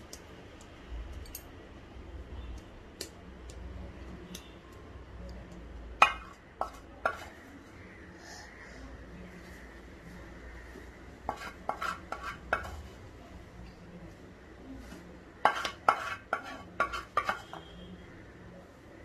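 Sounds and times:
utensil scraping steel plate: 0:11.3 - 0:12.8, 0:15.4 - 0:17.7.

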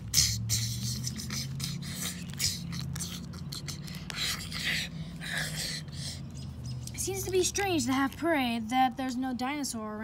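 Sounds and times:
steady low hum: 0:00.0 - 0:09.0
plastic toys scraping on asphalt: 0:01.0 - 0:05.6.

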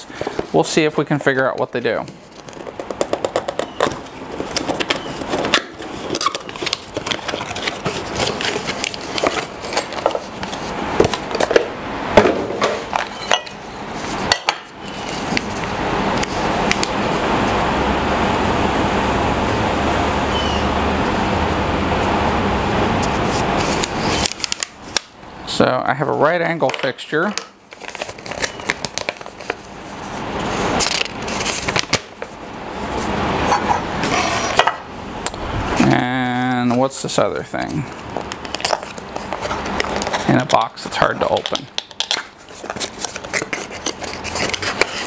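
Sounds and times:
packaging being opened: 0:00.0 - 0:11.7, 0:12.7 - 0:17.2, 0:23.0 - 0:25.2, 0:26.6 - 0:32.4, 0:37.4 - 0:45.0
steady rushing noise with hum: 0:04.0 - 0:27.7, 0:29.1 - 0:41.0.

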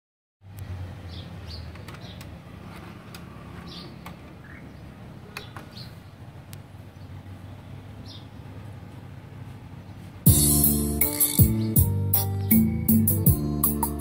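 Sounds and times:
bird chirping: 0:01.0 - 0:02.4, 0:03.6 - 0:06.2, 0:09.9 - 0:14.0.

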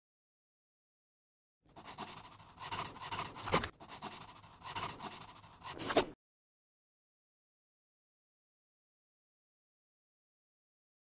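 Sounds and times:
pen scratching on paper: 0:01.7 - 0:06.2.

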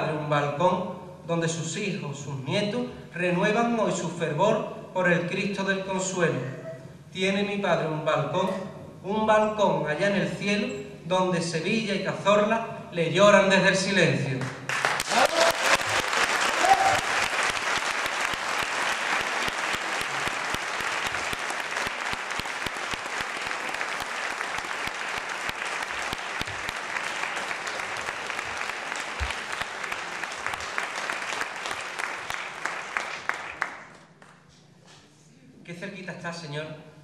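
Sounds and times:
audience applauding: 0:14.7 - 0:34.4.

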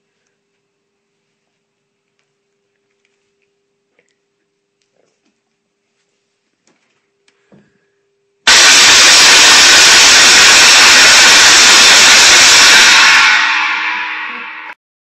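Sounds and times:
loud air horn blast: 0:08.5 - 0:14.8.

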